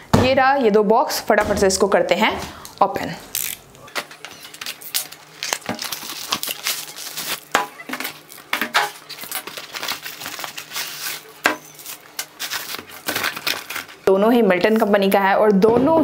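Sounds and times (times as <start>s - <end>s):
plastic wrap crinkling: 2.8s - 15.1s
cardboard rustling: 3.9s - 14.0s.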